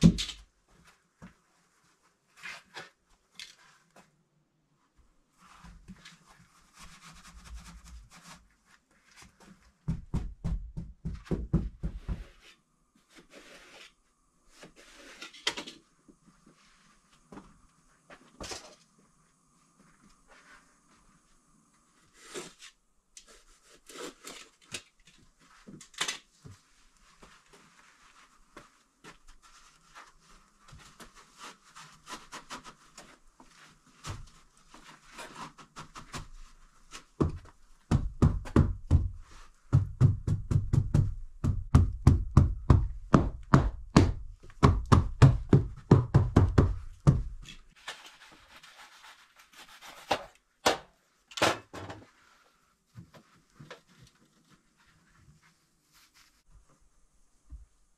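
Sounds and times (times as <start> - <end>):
rapid heavy knocking on wood: 39.8 - 47.4.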